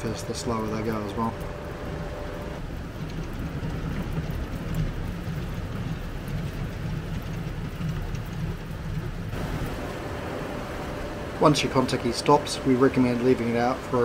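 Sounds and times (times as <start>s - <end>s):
winch drum spinning: 0.0s - 14.0s.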